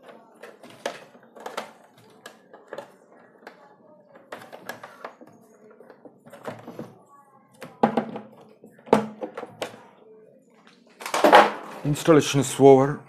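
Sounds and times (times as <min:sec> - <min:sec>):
hard plastic parts clicking: 0:00.0 - 0:03.6.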